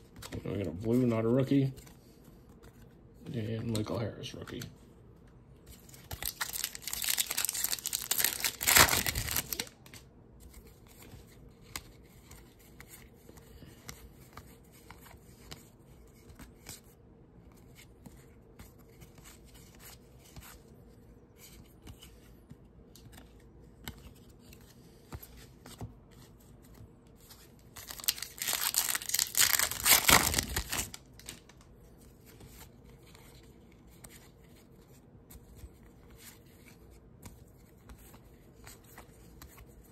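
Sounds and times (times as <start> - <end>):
card pack wrappers tearing: 6.1 - 9.8, 27.7 - 31.6.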